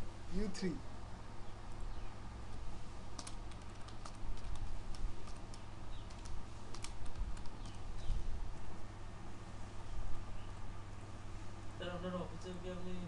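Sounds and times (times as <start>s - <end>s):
steady low hum: 0.0s - 13.0s
keyboard typing: 3.1s - 7.8s.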